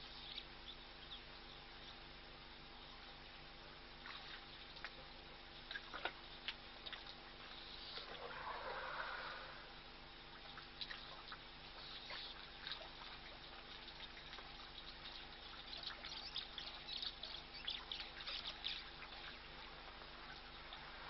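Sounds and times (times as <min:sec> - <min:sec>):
faint steady hum: 0:00.0 - 0:21.0
water trickling and splashing: 0:03.3 - 0:08.9, 0:09.8 - 0:21.0.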